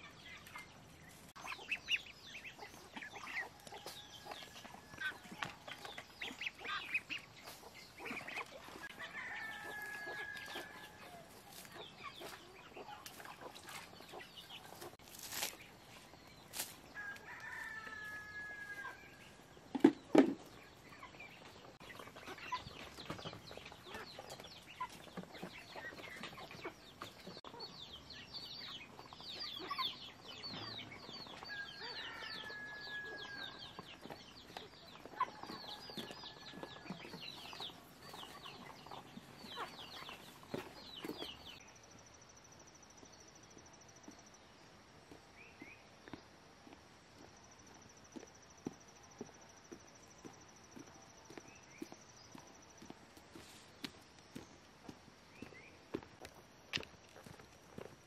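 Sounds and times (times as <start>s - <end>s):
chickens clucking: 0.0s - 41.6s
rooster crowing: 8.9s - 11.4s, 17.0s - 19.2s, 31.3s - 33.8s.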